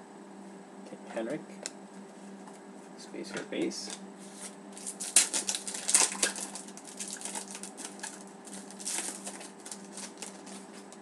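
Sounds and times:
faint steady hum: 0.0s - 11.0s
wrapper tearing and crinkling: 4.8s - 11.0s.

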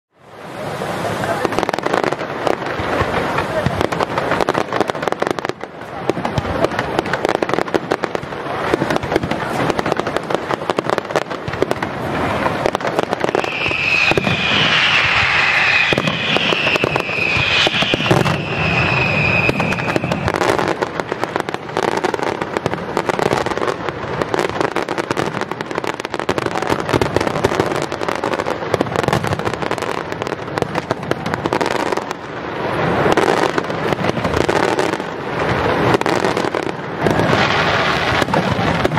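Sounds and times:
fireworks bangs and crackling: 0.2s - 38.9s
high steady whistle: 13.3s - 20.4s.

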